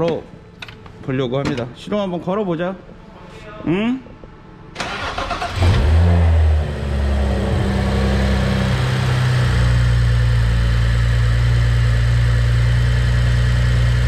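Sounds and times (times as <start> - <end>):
car engine idling: 4.8 - 14.0.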